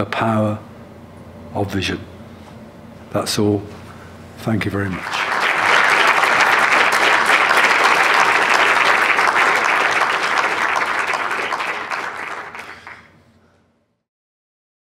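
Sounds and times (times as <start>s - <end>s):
audience applauding: 5.0s - 13.1s.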